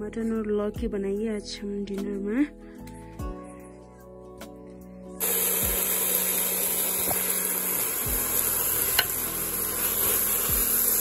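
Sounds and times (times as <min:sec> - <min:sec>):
meat sizzling in pot: 0:05.2 - 0:11.0.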